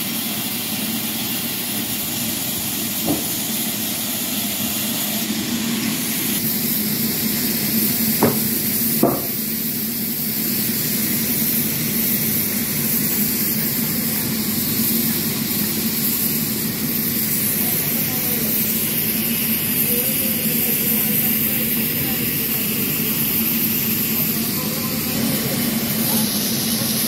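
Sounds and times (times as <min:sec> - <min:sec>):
sawmill machinery humming: 0:00.0 - 0:27.0
sharp knocks: 0:03.0 - 0:03.3, 0:08.2 - 0:09.4.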